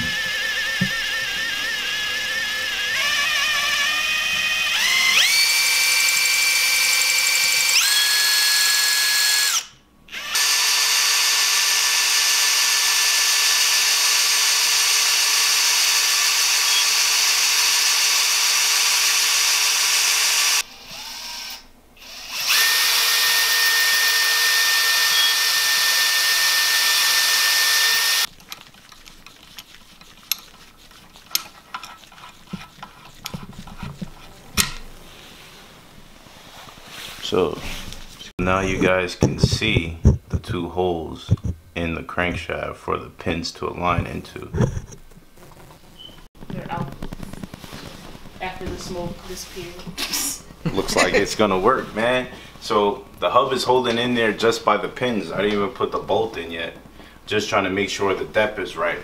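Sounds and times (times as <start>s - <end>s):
power drill whining: 0.0s - 28.3s.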